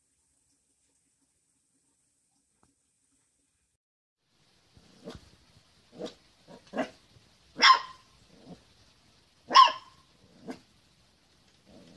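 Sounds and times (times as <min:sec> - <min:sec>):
puppy barking: 0:07.6 - 0:08.1, 0:09.5 - 0:10.6.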